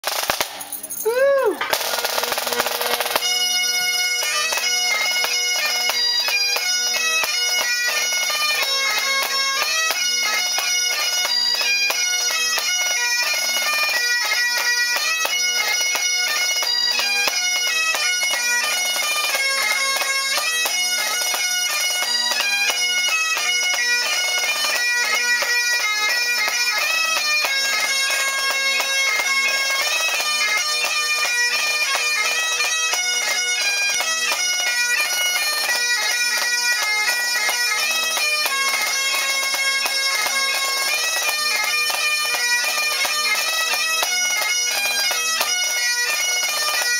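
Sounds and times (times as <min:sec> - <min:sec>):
snare drum: 0:00.0 - 0:00.6, 0:01.6 - 0:03.2
bagpipes playing a tune: 0:01.6 - 0:46.9.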